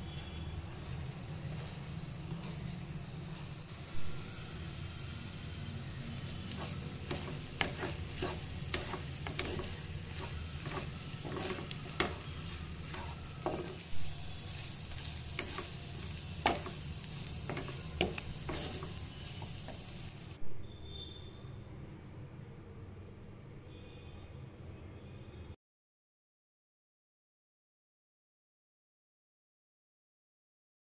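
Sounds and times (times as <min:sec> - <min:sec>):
food sizzling in a frying pan: 0:00.0 - 0:20.4
spatula stirring and scraping: 0:00.0 - 0:20.4.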